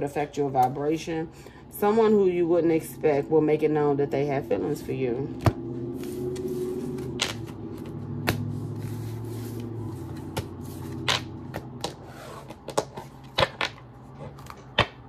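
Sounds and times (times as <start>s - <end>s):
low hum: 2.4s - 12.5s
cards tapping on a wooden desk: 10.3s - 13.8s, 14.4s - 15.0s.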